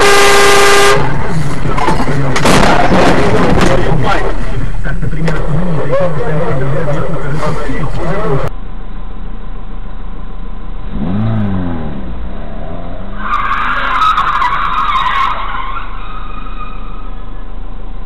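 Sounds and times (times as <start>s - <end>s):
steady engine hum: 0.0s - 13.9s, 15.4s - 18.0s
car engine revving: 10.8s - 15.0s
car tyres skidding: 10.9s - 17.6s.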